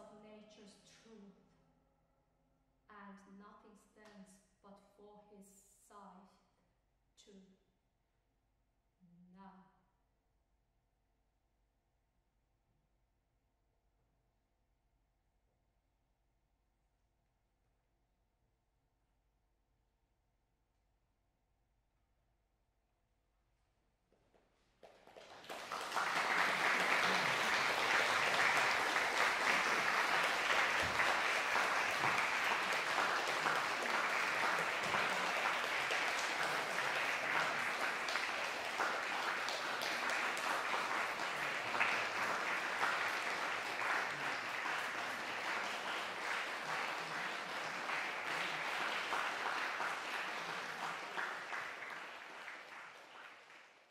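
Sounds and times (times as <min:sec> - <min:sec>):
audience applauding: 0:24.8 - 0:53.9.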